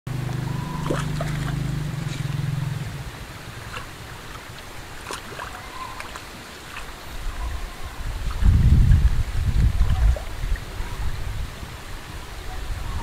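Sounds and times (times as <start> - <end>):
low hum: 0.1 - 6.0
water running over concrete: 0.1 - 13.0.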